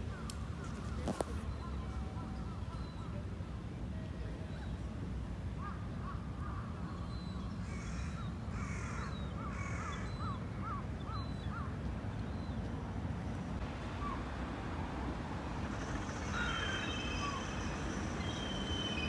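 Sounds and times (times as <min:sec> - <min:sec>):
crows cawing: 0:07.7 - 0:10.1, 0:15.9 - 0:17.7
bird chirping: 0:15.6 - 0:19.0.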